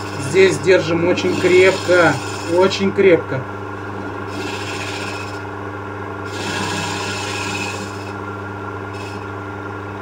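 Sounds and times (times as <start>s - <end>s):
cutter shaving wood: 0.0s - 3.0s, 4.2s - 5.5s, 6.2s - 9.3s
lathe motor humming: 0.0s - 10.0s.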